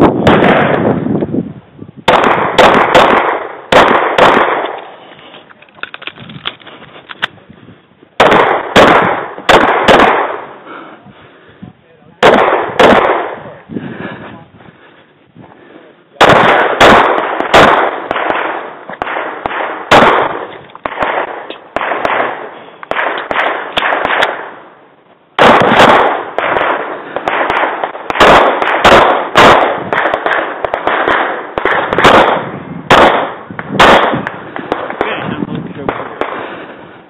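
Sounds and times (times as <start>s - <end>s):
pistol shots echoing: 0.1s - 0.9s, 2.1s - 5.0s, 8.2s - 10.7s, 12.2s - 13.6s, 16.2s - 24.7s, 25.4s - 36.5s.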